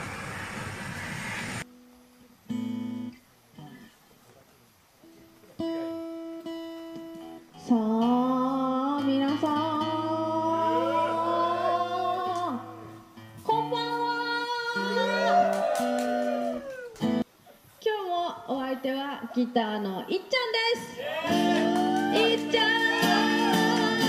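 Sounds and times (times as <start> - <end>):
acoustic guitar: 1.6 - 4.1, 5.0 - 17.3, 20.8 - 24.0
woman singing: 7.6 - 12.8, 13.4 - 15.6, 17.9 - 24.0.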